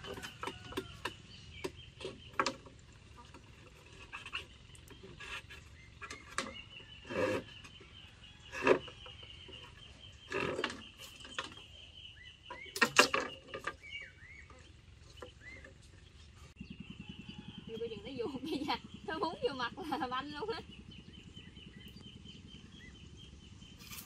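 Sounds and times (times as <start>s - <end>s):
bamboo sticks clicking and knocking: 12.6s - 13.8s.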